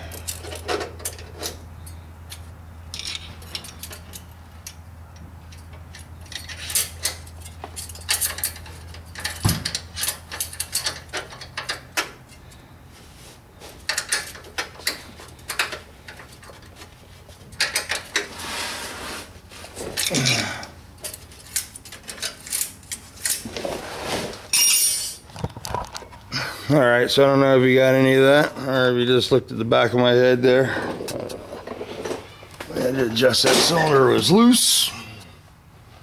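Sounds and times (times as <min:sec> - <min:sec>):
wrench and screwdriver clinking: 0:00.0 - 0:04.8, 0:05.5 - 0:12.1, 0:13.9 - 0:16.7, 0:24.5 - 0:25.2.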